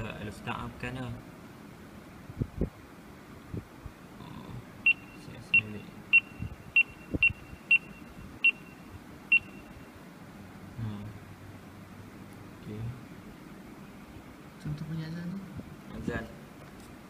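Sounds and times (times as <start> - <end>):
wristwatch high beeps: 4.9 - 9.8.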